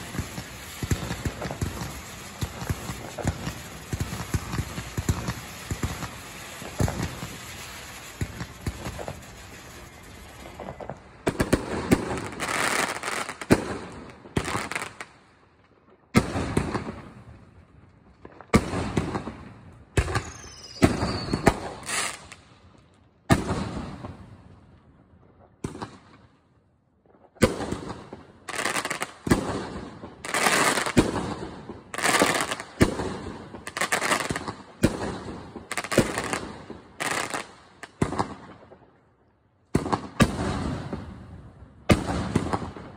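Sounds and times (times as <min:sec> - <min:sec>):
fireworks bangs and crackle: 0:00.0 - 0:26.4, 0:27.0 - 0:42.9
firework whistle falling: 0:20.1 - 0:22.2.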